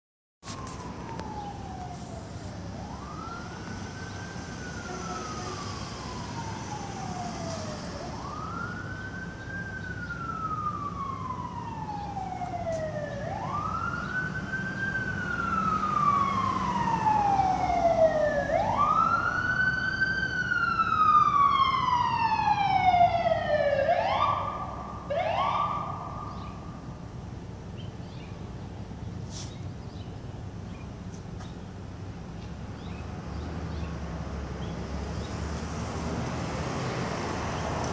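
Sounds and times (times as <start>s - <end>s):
siren chirps: 0.4s - 27.0s
ambulance siren wailing: 0.4s - 27.2s.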